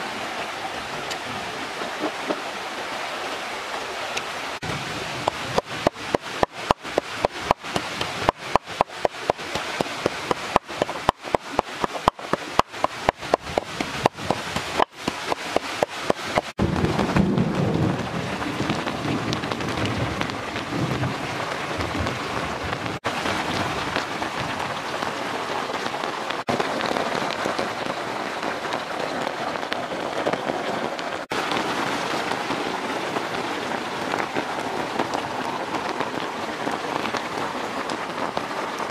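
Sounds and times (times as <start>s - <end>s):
pestle pounding in mortar: 5.2s - 16.5s.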